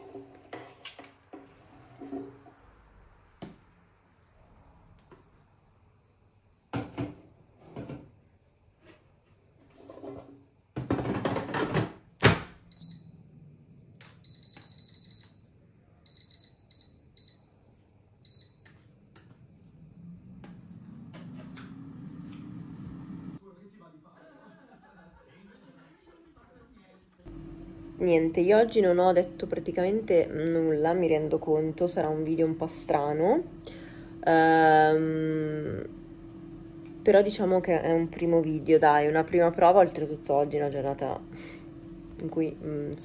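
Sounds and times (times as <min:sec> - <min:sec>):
fan humming: 0:16.1 - 0:23.4, 0:27.3 - 0:43.0.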